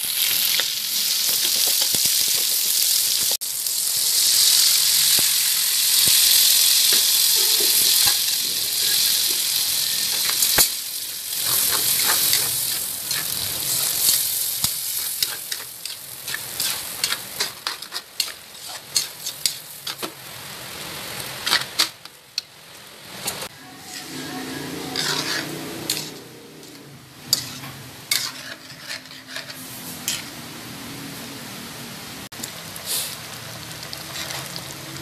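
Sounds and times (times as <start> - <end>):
liquid boiling and hissing: 0.0 - 23.5, 32.3 - 35.0
metal spatula scraping a wok: 6.8 - 20.2, 21.3 - 22.0, 23.5 - 30.4, 34.0 - 34.6.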